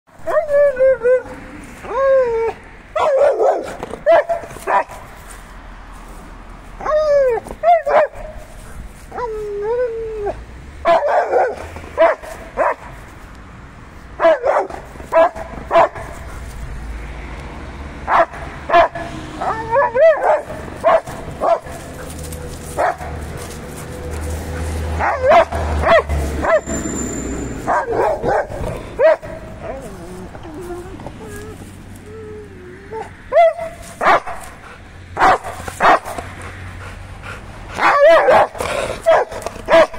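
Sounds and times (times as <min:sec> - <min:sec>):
puppy yelping barks: 0:00.2 - 0:05.0, 0:06.8 - 0:08.4, 0:10.8 - 0:12.9, 0:14.2 - 0:16.2, 0:18.1 - 0:31.6, 0:32.9 - 0:34.4, 0:35.2 - 0:36.3, 0:37.8 - 0:39.9
dog whining: 0:25.0 - 0:33.7.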